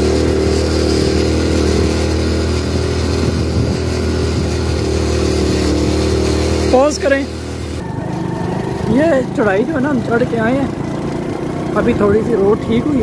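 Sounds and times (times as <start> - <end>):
motorcycle engine running: 0.0 - 13.0
wind noise on microphone: 1.0 - 6.0.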